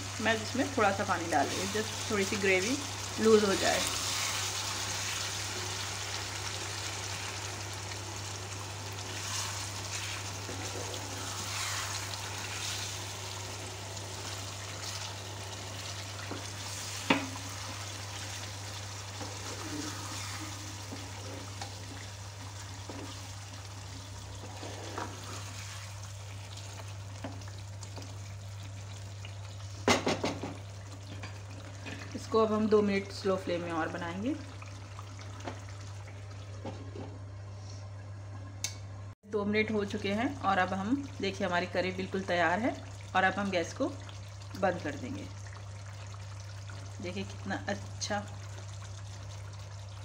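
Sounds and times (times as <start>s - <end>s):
gravy sizzling in a frying pan: 0.0s - 36.8s, 39.7s - 50.0s
spatula stirring: 19.1s - 22.1s.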